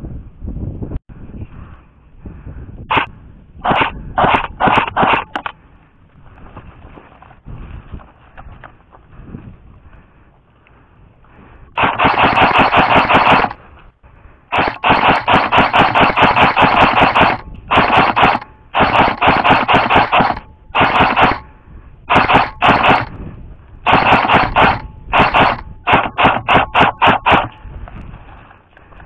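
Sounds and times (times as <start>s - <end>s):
airsoft rifle firing bursts: 2.9s - 5.5s, 11.8s - 13.6s, 14.5s - 21.5s, 22.1s - 23.2s, 23.9s - 27.6s.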